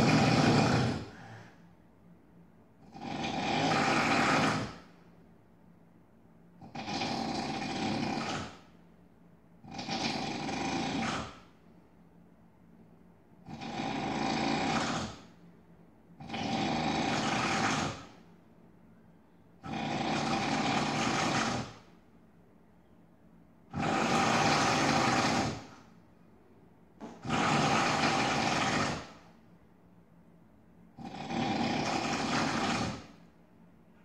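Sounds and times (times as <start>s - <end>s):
person snoring heavily: 0.0s - 1.5s, 2.8s - 4.9s, 6.6s - 8.6s, 9.7s - 11.5s, 13.5s - 15.3s, 16.2s - 18.1s, 19.6s - 21.8s, 23.7s - 25.8s, 27.2s - 29.2s, 31.0s - 33.2s
quiet breaths: 0.0s - 2.0s.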